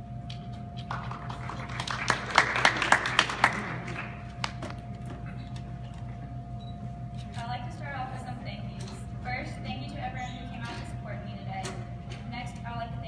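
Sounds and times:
audience applause: 0.9s - 4.7s.

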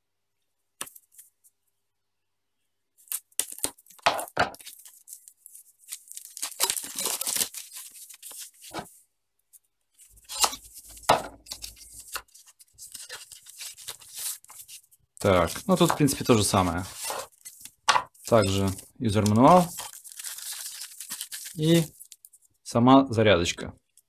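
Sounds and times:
rasping tear: 5.9s - 8.4s, 10.1s - 17.6s
knife slitting cardboard seal: 10.2s - 10.7s.

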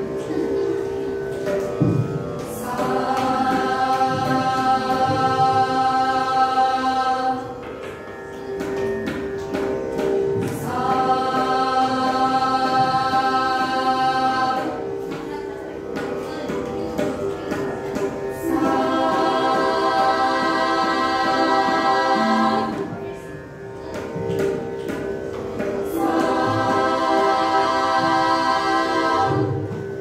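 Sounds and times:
women singing in unison: 2.4s - 7.8s, 10.4s - 23.0s, 25.6s - 30.0s.

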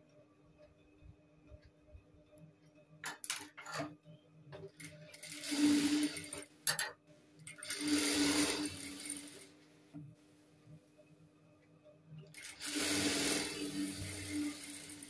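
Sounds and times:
sewing machine stitching: 4.8s - 6.5s, 7.5s - 9.5s, 12.3s - 15.0s.

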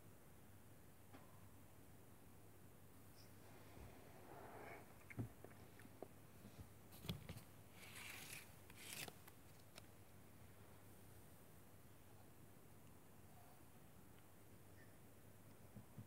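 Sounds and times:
faint scraping and rubbing: 3.2s - 5.9s.

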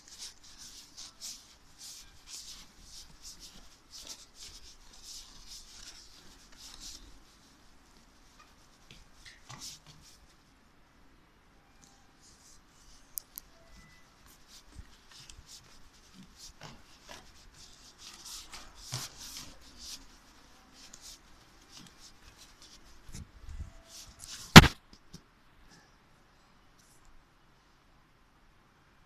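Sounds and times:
sharp loud knock: 24.5s - 24.8s.

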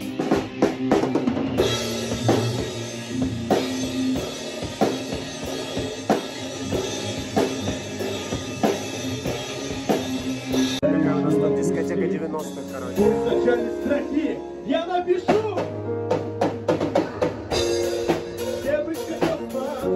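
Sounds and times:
cymbals ringing: 1.6s - 10.8s.

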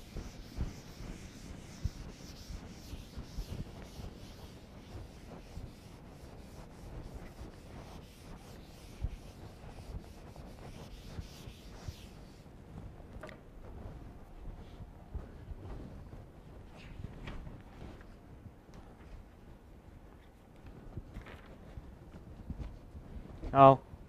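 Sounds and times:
duster rubbing on chalkboard: 0.0s - 12.5s.

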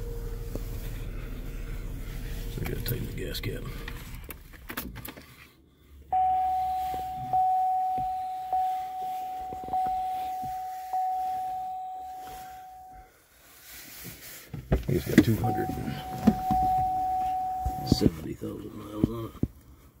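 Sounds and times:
dashboard warning chime: 6.1s - 13.1s, 15.0s - 19.0s.

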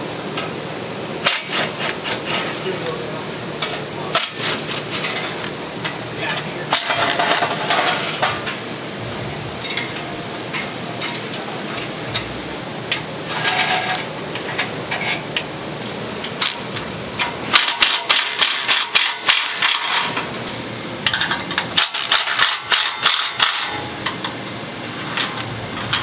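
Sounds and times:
cordless driver running: 21.8s - 23.9s, 24.8s - 26.0s.

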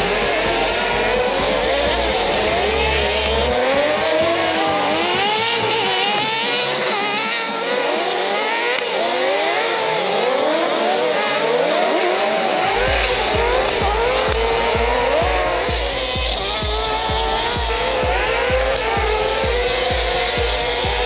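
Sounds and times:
race car engines revving: 0.0s - 21.0s
tyre noise: 0.0s - 21.0s.

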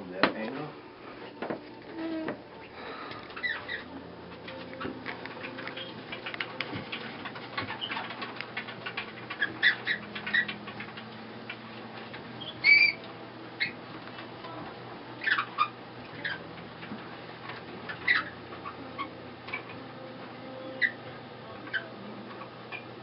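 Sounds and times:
wooden mill squeaking: 3.4s - 13.8s, 15.2s - 19.8s, 20.6s - 21.0s
wooden mill clicking: 4.4s - 13.1s.

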